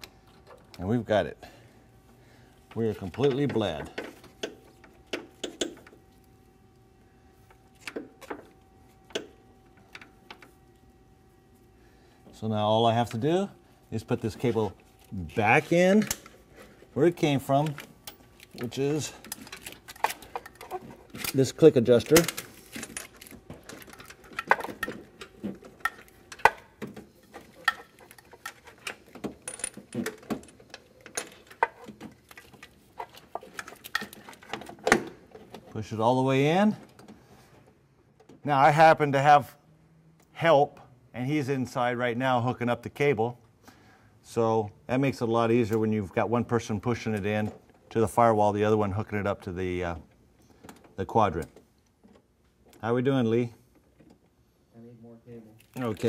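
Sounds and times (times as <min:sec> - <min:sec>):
metal parts clicking: 0:17.5 - 0:26.6.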